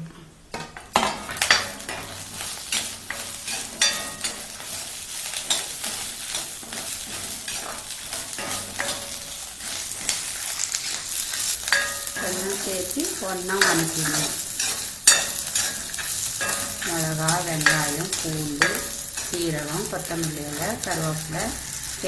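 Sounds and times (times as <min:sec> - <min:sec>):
vegetables sizzling in oil: 0:00.5 - 0:22.0.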